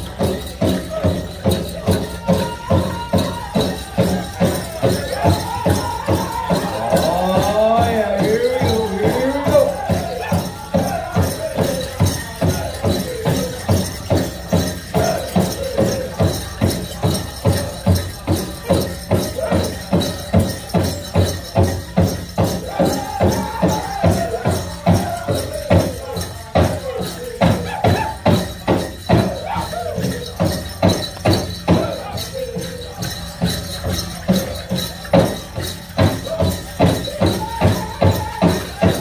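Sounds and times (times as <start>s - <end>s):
group singing in high falling phrases: 4.8s - 13.0s, 14.9s - 16.1s, 22.6s - 28.2s.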